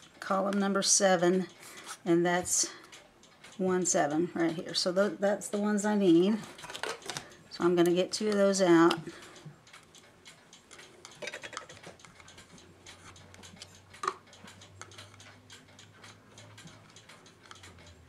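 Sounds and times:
mechanical clock ticking: 0.0 - 18.0.

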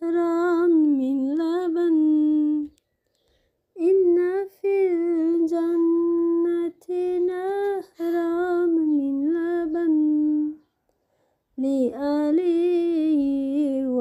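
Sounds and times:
woman singing lullaby: 0.0 - 2.8, 3.8 - 10.7, 11.6 - 14.0.

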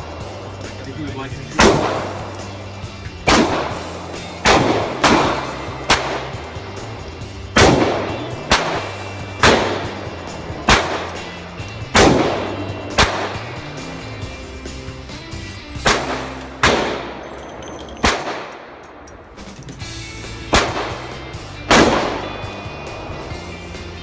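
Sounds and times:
handgun shots echoing indoors: 18.0 - 18.8.

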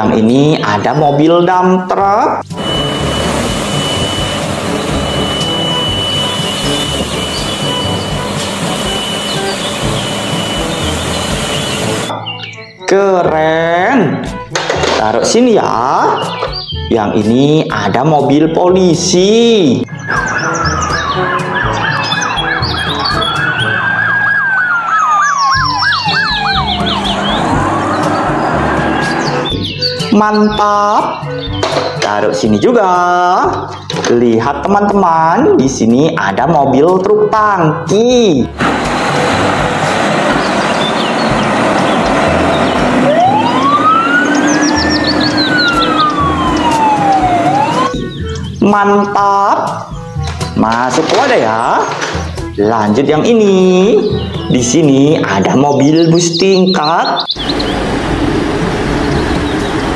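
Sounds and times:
engine and traffic rumble: 2.5 - 12.1, 25.6 - 29.7, 38.6 - 48.0, 57.2 - 59.9
police siren wailing: 2.5 - 12.2, 19.9 - 29.6, 40.3 - 48.3
quick high chirps: 2.5 - 12.2
siren fast yelp: 2.5 - 12.2, 20.0 - 30.0, 42.5 - 48.3.

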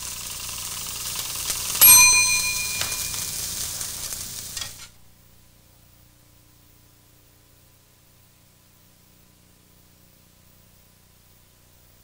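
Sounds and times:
kitchen timer bell ringing: 1.6 - 3.8
meat sizzling in a frying pan: 2.8 - 4.9.

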